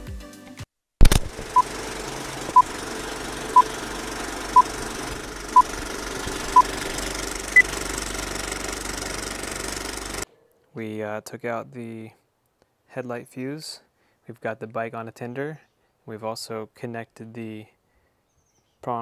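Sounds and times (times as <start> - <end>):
loud click: 1.0 - 1.6
film projector crackle: 1.0 - 10.2.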